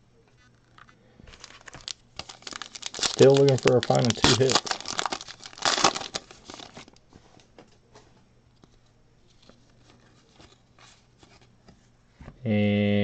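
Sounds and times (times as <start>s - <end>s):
foil wrapper crinkling and tearing: 1.3s - 7.0s.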